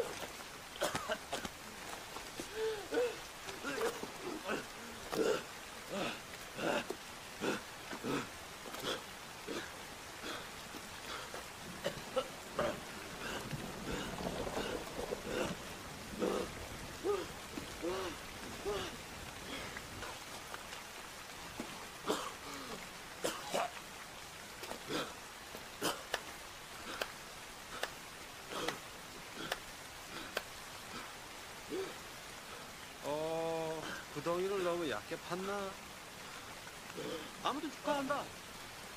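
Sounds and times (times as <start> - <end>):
heavy rain on wet mud: 0.0 - 38.9
man gasping for breath: 2.4 - 3.2.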